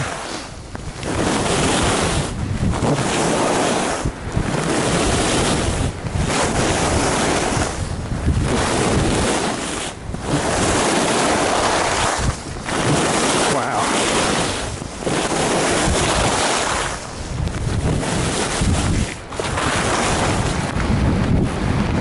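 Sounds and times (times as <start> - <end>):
wind rushing over microphone: 0.0 - 22.0
skis carving on snow: 2.8 - 4.1, 8.5 - 17.1, 18.1 - 20.7.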